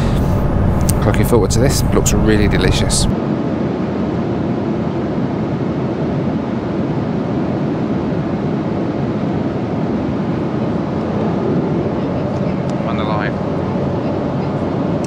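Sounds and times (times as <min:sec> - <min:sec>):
airliner cabin noise: 0:00.0 - 0:03.1.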